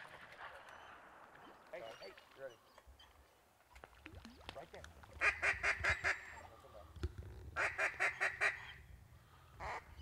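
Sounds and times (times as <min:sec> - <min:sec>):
duck quacking: 0:05.2 - 0:06.3, 0:07.6 - 0:08.8.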